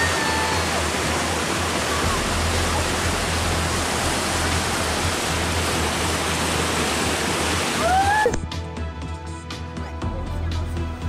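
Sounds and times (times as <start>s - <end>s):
river rapids rushing: 0.0s - 8.4s
background music: 0.0s - 11.0s.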